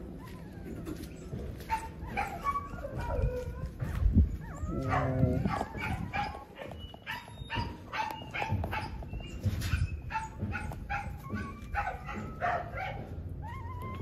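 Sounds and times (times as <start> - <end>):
puppies crying: 0.0 - 14.0.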